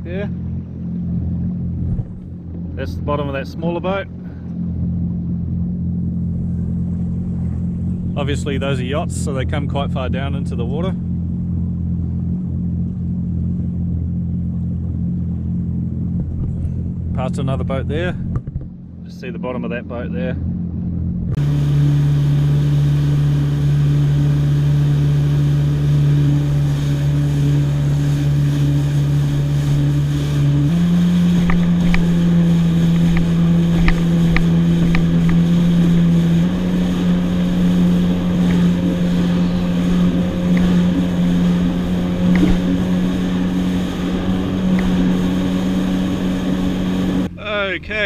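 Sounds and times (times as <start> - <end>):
personal watercraft engine at speed: 0.0 - 48.0
wind and water rushing: 21.3 - 48.0.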